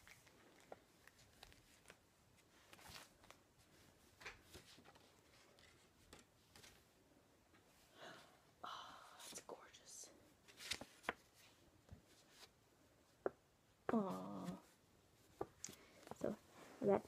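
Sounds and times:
paper rustling and clicking: 0:10.5 - 0:11.5.

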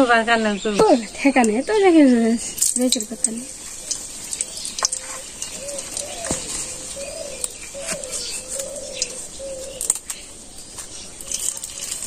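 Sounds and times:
light steady hiss: 0:00.0 - 0:12.0
faint clicks: 0:02.6 - 0:12.0
dove cooing: 0:03.1 - 0:10.4.

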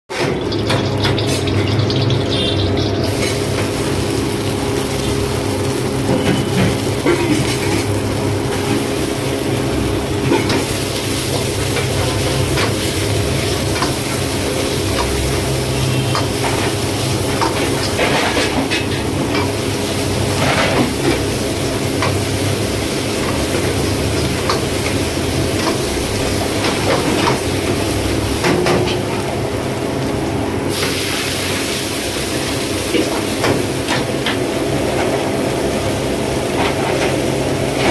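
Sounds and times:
food sizzling in a wok: 0:00.1 - 0:37.9
liquid hissing in a hot wok: 0:30.6 - 0:33.4.

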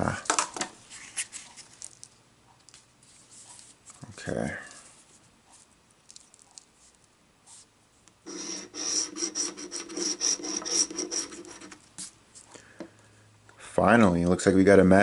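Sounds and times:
lottery ticket scratching: 0:08.3 - 0:12.1.

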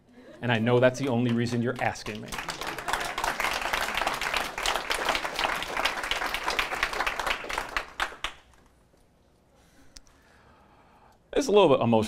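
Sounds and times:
audience applauding: 0:00.6 - 0:08.6.

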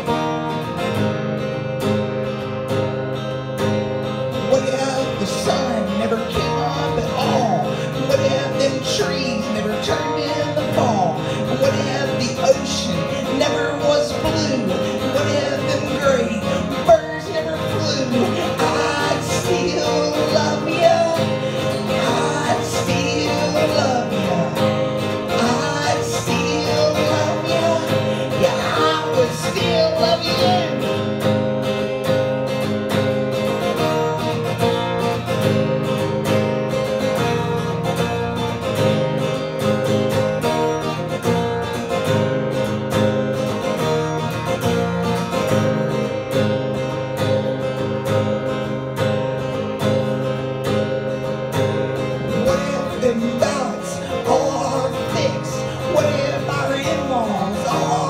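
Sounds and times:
acoustic guitar strumming: 0:00.0 - 0:58.0
man singing: 0:04.3 - 0:31.4, 0:52.0 - 0:58.0.

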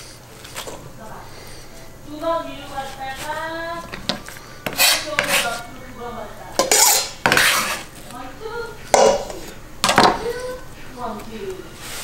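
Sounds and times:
knife scraping on cutting board: 0:02.8 - 0:05.7, 0:06.6 - 0:08.1.

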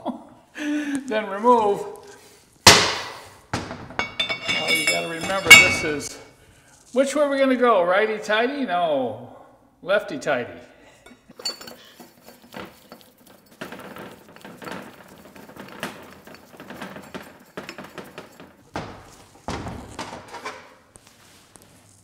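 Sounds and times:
metal clinks and scrapes: 0:04.0 - 0:07.0, 0:11.0 - 0:19.4.

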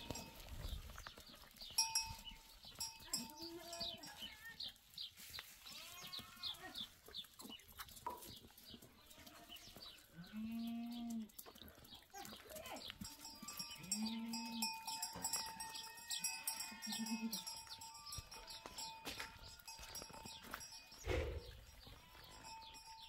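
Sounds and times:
bell clanking: 0:01.8 - 0:03.3, 0:13.1 - 0:21.1, 0:21.8 - 0:23.0
goat bleating: 0:03.1 - 0:04.7, 0:05.6 - 0:07.0, 0:09.0 - 0:11.3, 0:13.0 - 0:17.6.

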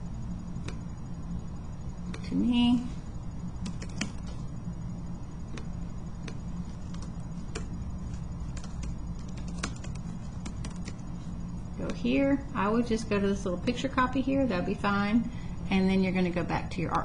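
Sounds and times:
steady low hum: 0:00.0 - 0:17.0
computer keys clicking: 0:03.6 - 0:04.3, 0:05.5 - 0:11.0.

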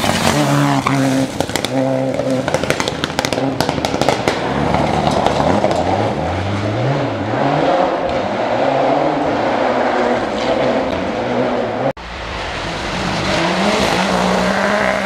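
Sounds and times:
rally car engine accelerating: 0:00.0 - 0:15.0
sharp cracks: 0:01.2 - 0:06.0.

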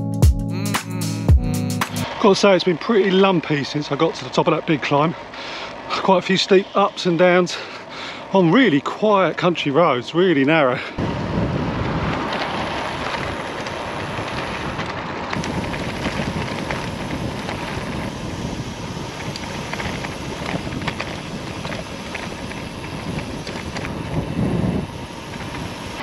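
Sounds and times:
bike tyres rumbling on tarmac: 0:02.0 - 0:26.0
bike clicks and rattles: 0:07.2 - 0:10.9, 0:11.6 - 0:26.0
wind on microphone: 0:11.0 - 0:26.0.

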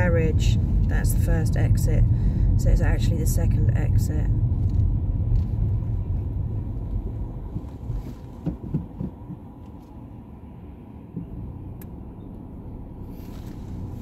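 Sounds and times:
car engine and road rumble: 0:00.0 - 0:14.0
short knocks: 0:07.4 - 0:09.6.

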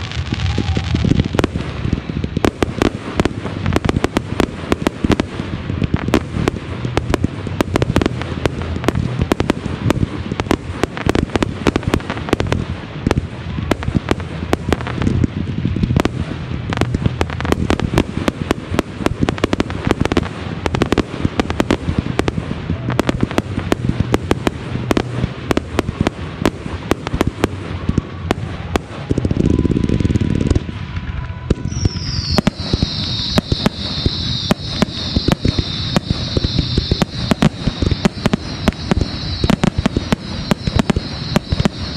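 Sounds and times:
fireworks popping and banging: 0:00.0 - 0:41.9
loud rushing burst: 0:00.0 - 0:41.9
high hiss: 0:31.7 - 0:41.9.

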